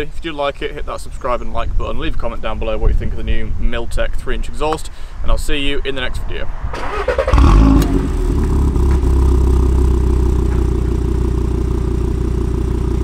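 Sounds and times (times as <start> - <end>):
car engine starting and idling: 6.7 - 13.0.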